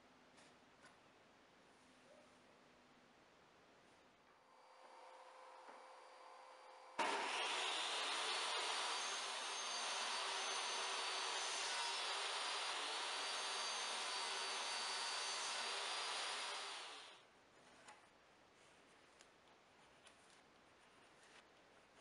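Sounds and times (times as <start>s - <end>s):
table saw running: 6.9s - 17.2s
saw blade spinning down: 7.0s - 17.2s.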